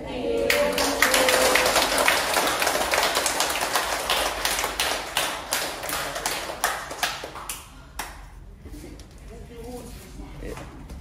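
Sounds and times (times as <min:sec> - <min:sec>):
people applauding: 0:00.5 - 0:08.2.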